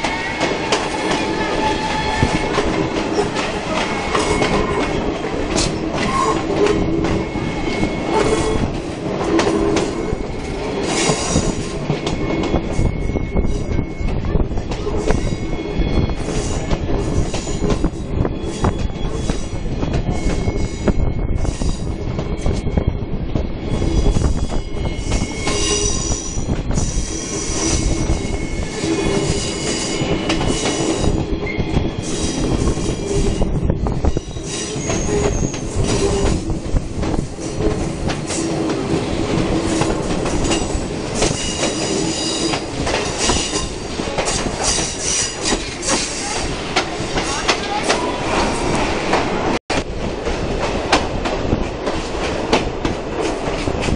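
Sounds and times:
train wheels squealing: 0:00.0 - 0:36.6, 0:39.6 - 0:46.5
carriages rumbling and clattering: 0:24.1 - 0:53.9.

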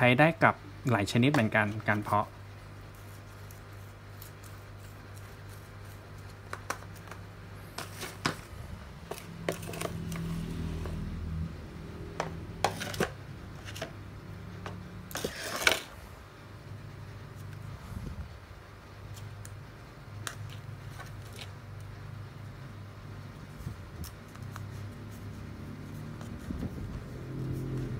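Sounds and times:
scoop scraping potting mix: 0:01.1 - 0:11.0, 0:12.6 - 0:14.0, 0:15.1 - 0:16.0.

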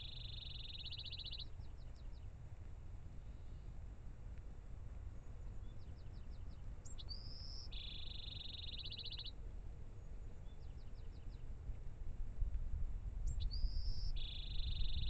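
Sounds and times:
songbird singing: 0:00.0 - 0:02.4, 0:04.9 - 0:11.8, 0:13.2 - 0:15.0
steady low rumble: 0:11.2 - 0:15.0.

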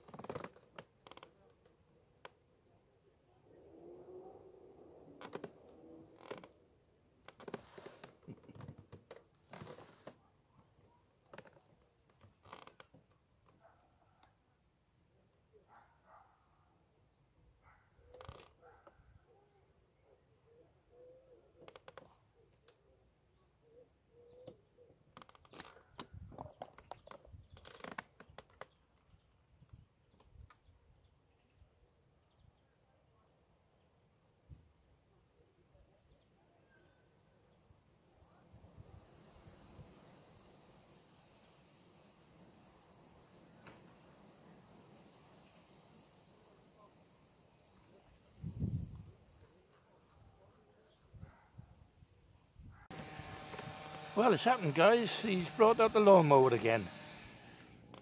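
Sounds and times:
fishing tackle clicks and rustles: 0:25.2 - 0:28.7.

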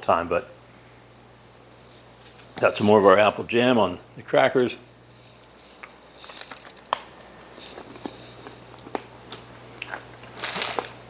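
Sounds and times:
packaging rustle: 0:05.2 - 0:11.0
crunching and chewing cracker: 0:07.7 - 0:11.0.

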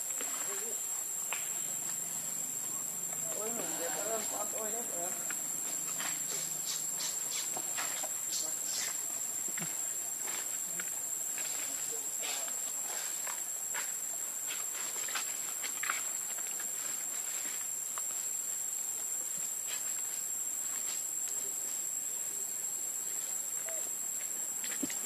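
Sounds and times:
insects buzzing: 0:00.0 - 0:25.0.

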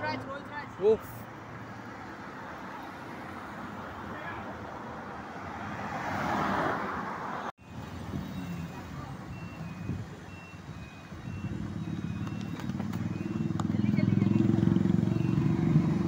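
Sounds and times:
road traffic: 0:00.0 - 0:16.0
car driving past: 0:05.2 - 0:07.4, 0:11.8 - 0:16.0
faint high-pitched beep: 0:08.3 - 0:15.6.

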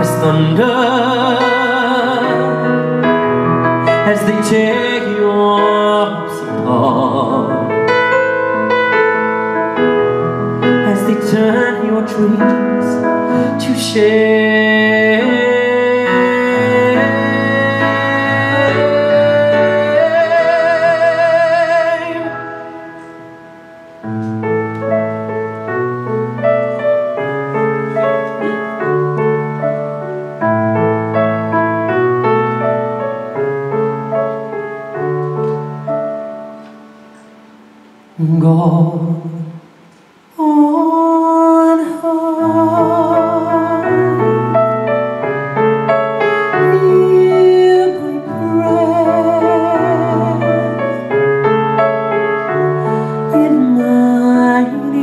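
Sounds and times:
man singing with vibrato: 0:00.0 - 0:23.0, 0:38.1 - 0:55.0
solo piano: 0:00.0 - 0:55.0.

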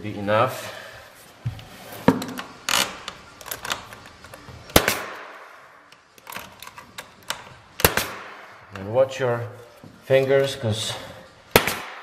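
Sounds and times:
nail gun shots: 0:04.7 - 0:05.5, 0:07.8 - 0:08.5, 0:11.5 - 0:12.0.

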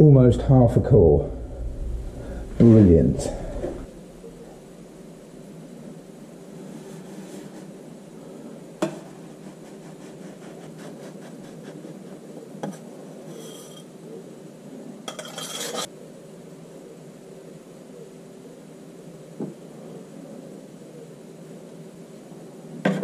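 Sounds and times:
steady low hum: 0:00.0 - 0:15.1.

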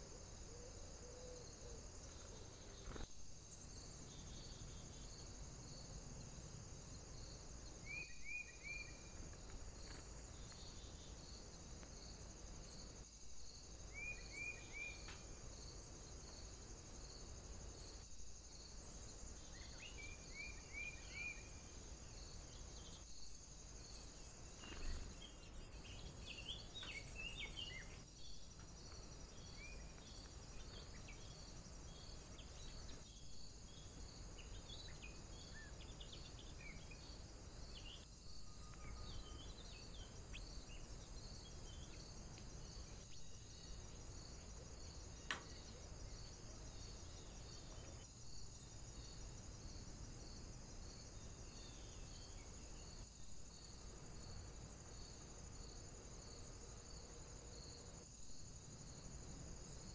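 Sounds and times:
insect chirring: 0:00.0 - 0:59.9
songbirds chirping: 0:00.2 - 0:49.7
sharp click: 0:45.3 - 0:45.6.

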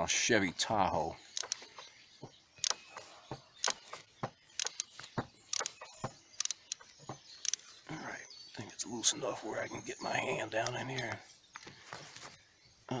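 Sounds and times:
ratchet clicking: 0:01.4 - 0:01.6, 0:02.6 - 0:02.8, 0:04.6 - 0:04.9, 0:06.4 - 0:06.8.

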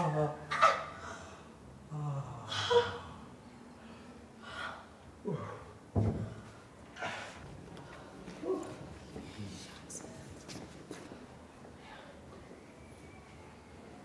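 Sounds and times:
sudden thump: 0:06.0 - 0:06.4.

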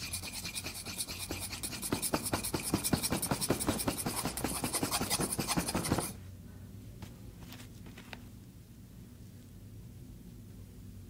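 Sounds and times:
rapid scratching strokes: 0:00.0 - 0:06.2.

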